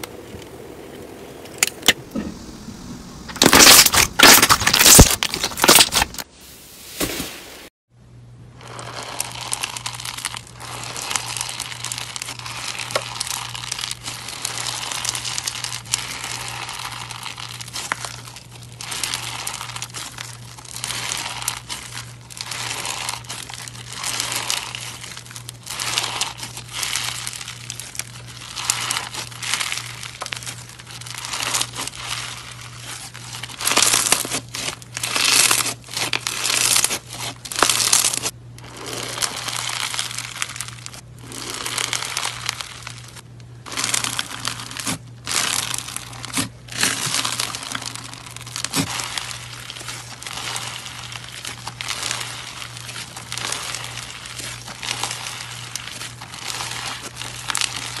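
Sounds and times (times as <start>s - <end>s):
steady low hum: 0.0s - 8.7s
slime crackling: 3.3s - 6.3s, 8.6s - 58.0s.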